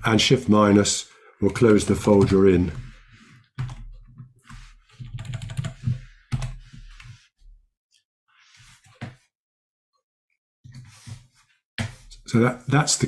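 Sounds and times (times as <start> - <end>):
computer keyboard keystrokes: 5.0 - 6.6.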